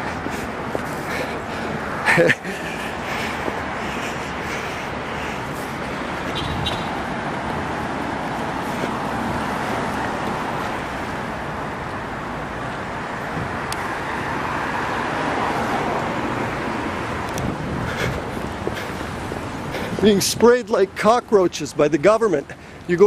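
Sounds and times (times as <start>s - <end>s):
cars driving past: 0.0s - 20.5s.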